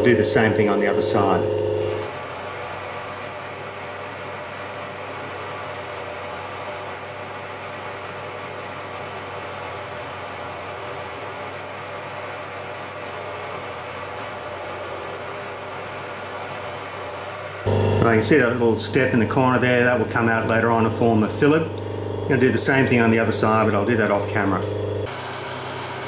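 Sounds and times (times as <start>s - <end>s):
thin high whine: 0.0s - 2.1s, 3.2s - 5.5s, 11.6s - 13.2s, 15.2s - 16.8s
milling machine running: 0.0s - 18.8s, 20.8s - 26.0s.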